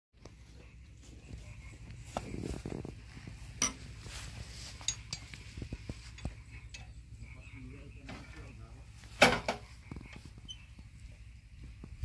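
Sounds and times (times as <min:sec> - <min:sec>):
steady low rumble: 0:00.2 - 0:12.0
light clinks and knocks: 0:03.4 - 0:07.0.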